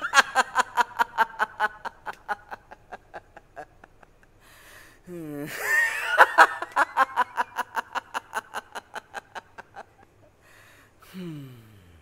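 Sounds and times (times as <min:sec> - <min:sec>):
man laughing hard: 0:00.0 - 0:04.2, 0:05.4 - 0:10.0.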